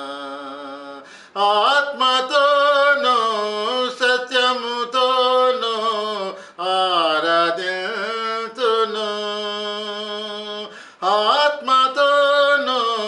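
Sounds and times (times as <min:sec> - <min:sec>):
man singing unaccompanied: 0:00.0 - 0:13.0.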